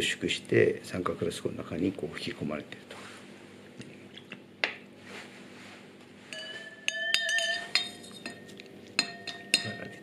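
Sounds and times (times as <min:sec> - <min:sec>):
glass flask clinking: 0:06.3 - 0:10.0.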